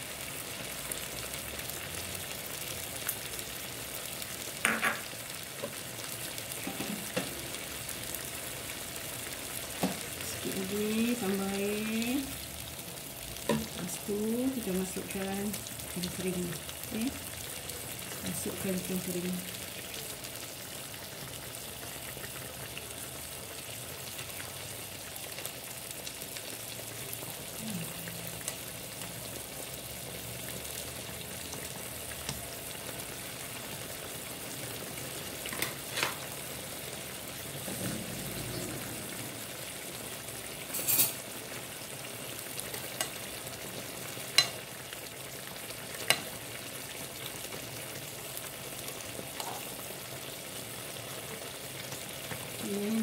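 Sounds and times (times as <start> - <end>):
broth boiling bubbling hiss: 0.0 - 53.0.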